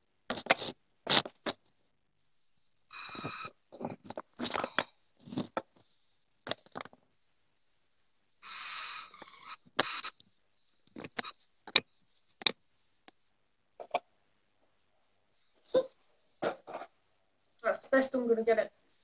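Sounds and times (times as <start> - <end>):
breathy hiss of vaping: 2.9 - 3.6, 8.4 - 10.2.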